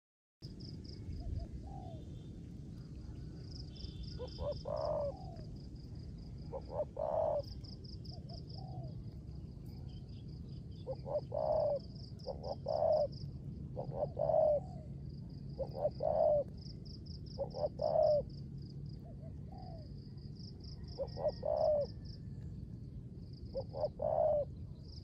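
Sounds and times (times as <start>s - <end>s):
dove cooing: 1.2s - 2.1s, 4.0s - 9.1s, 10.8s - 18.4s, 19.0s - 20.2s, 20.8s - 22.4s, 23.5s - 24.6s.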